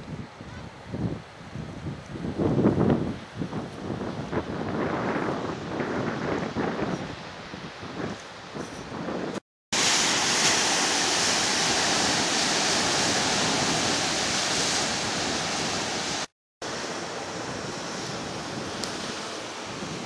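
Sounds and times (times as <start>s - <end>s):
wind on microphone: 0.0s - 16.3s, 17.2s - 20.0s
surf breaking on rocks: 9.8s - 16.3s.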